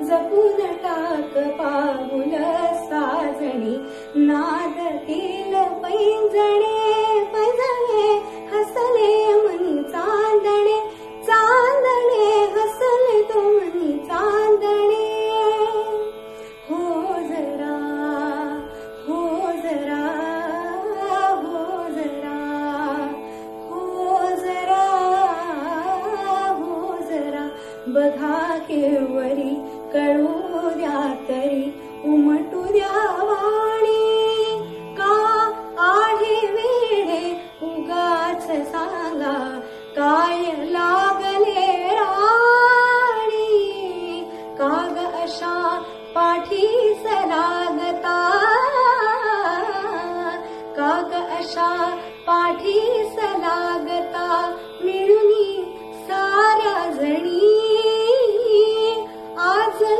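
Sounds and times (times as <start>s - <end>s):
woman singing classical style: 0.0s - 59.9s.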